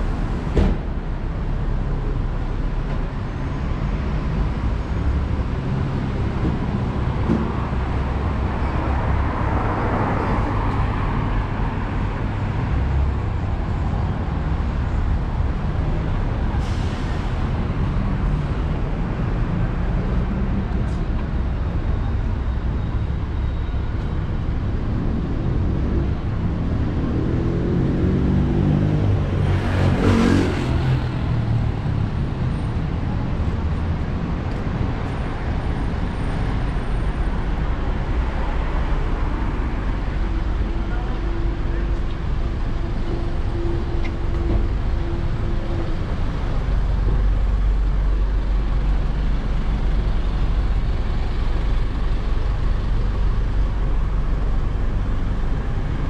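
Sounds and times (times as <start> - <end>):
car and bus engines rumbling: 0.0 - 56.0.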